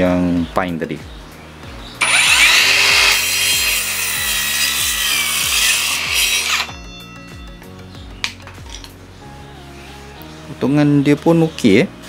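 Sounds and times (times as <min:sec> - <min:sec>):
circular saw cutting wood: 0:02.0 - 0:06.8.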